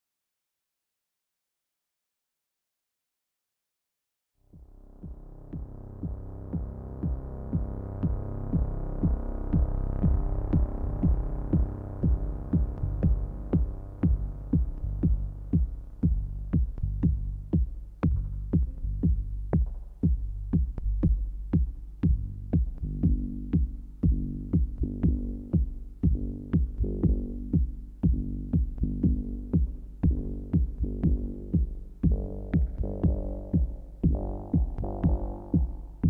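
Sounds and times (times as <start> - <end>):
kick drum: 4.4 - 36.0
low synth pad: 4.5 - 17.4
electronic dance music: 28.6 - 36.0.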